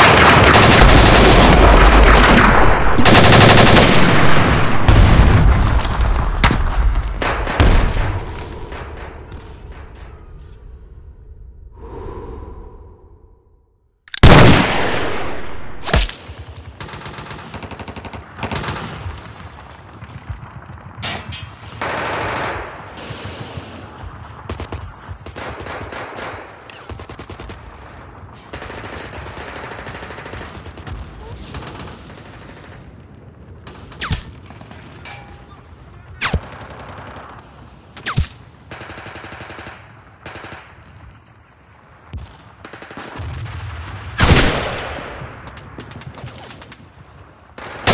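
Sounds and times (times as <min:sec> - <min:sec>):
rapid automatic gunfire: 0:00.0 - 0:05.1, 0:24.5 - 0:32.9, 0:38.7 - 0:40.7
loud rifle shot with echo: 0:14.2 - 0:16.2.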